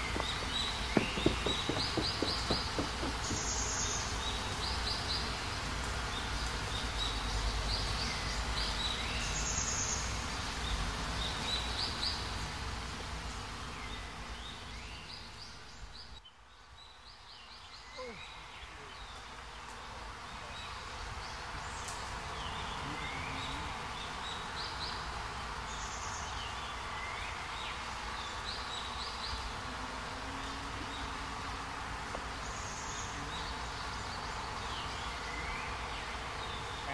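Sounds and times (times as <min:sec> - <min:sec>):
small birds chirping: 0:00.0 - 0:12.5.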